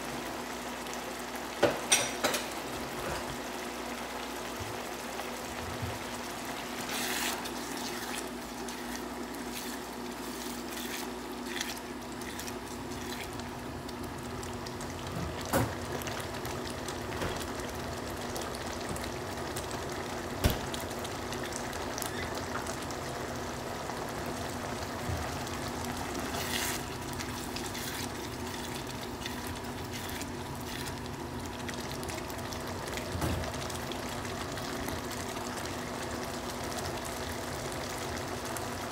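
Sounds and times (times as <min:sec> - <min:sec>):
sauce bubbling in a pan: 0:00.0 - 0:38.9.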